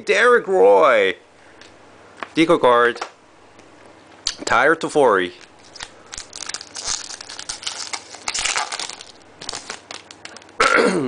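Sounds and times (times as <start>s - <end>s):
foil wrapper crinkling: 5.3s - 10.6s.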